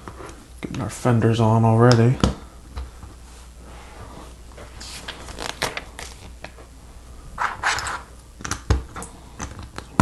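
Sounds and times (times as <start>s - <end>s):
rustling scrape: 3.2s - 5.6s.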